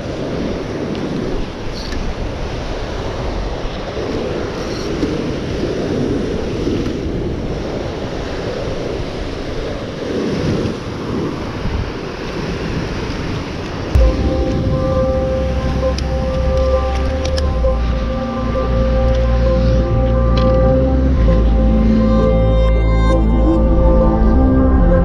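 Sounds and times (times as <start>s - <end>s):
ocean surf breaking on rocks: 0.0s - 20.8s
wind buffeting microphone: 0.0s - 22.9s.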